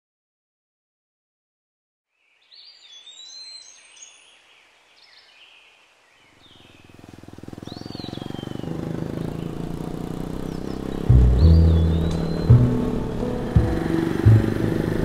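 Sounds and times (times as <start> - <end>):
birds chirping and whistling: 2.5 - 15.0
motorcycle engine: 6.6 - 15.0.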